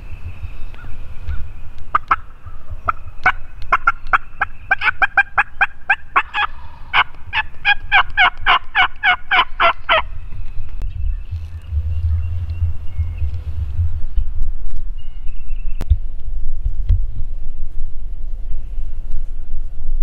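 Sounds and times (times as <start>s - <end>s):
wild turkey yelping: 0.8s - 10.1s
low rumble: 9.7s - 20.0s.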